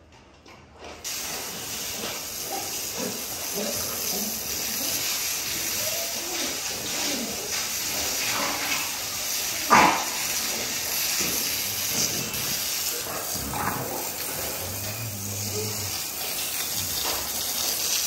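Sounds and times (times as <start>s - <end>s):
dog barking: 2.4s - 4.4s, 9.6s - 10.6s.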